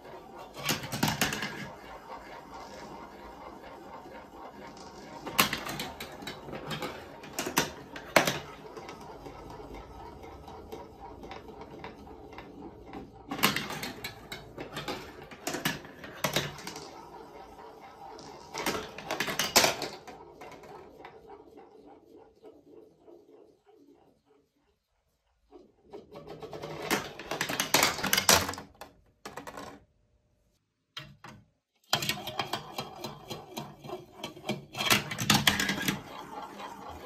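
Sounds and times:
marbles rolling through plastic tracks: 0.0s - 23.2s, 25.6s - 29.9s, 31.9s - 37.0s
marbles clacking on plastic: 11.1s - 20.7s.

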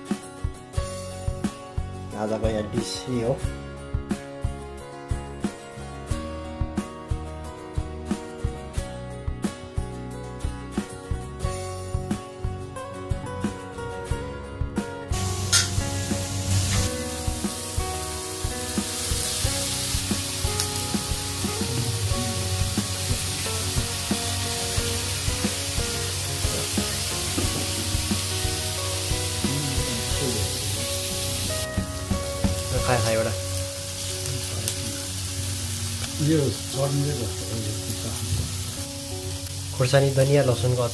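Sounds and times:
background music: 0.0s - 40.9s
meat sizzling on a hot plate: 15.1s - 40.9s.

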